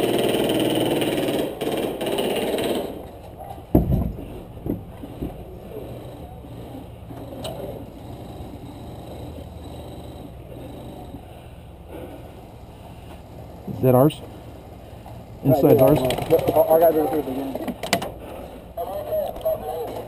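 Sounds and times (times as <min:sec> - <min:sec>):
airsoft gun full-auto bursts: 0:00.0 - 0:03.0.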